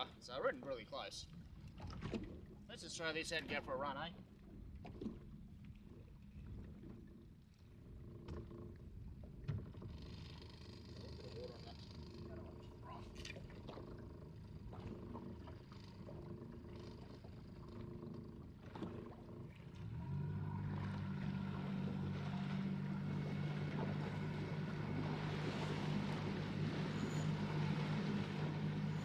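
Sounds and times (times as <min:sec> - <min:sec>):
outboard motor droning: 0:00.0 - 0:29.0
water and wind along hull: 0:00.0 - 0:29.0.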